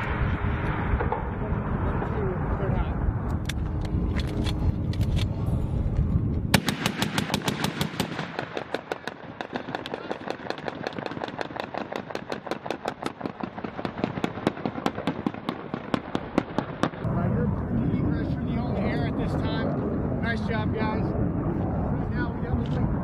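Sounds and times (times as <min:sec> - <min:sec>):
heavy machine gun firing: 0:06.5 - 0:17.0.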